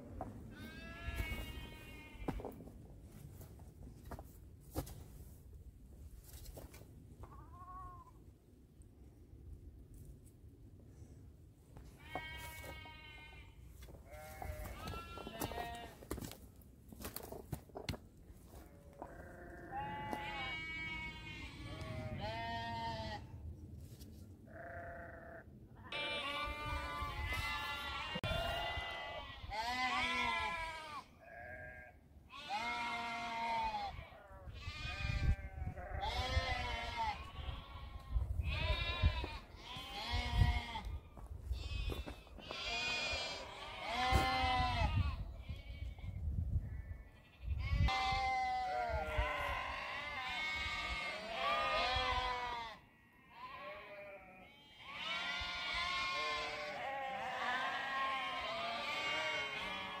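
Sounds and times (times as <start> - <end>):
sheep and goats bleating: 0.5 - 2.6, 11.8 - 16.4, 18.4 - 23.4, 24.5 - 60.0.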